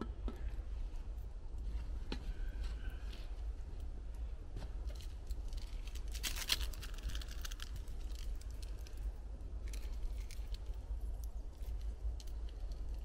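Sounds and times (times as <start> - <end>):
steady low rumble: 0.0 - 13.0
packet tearing and crinkling: 5.2 - 8.9.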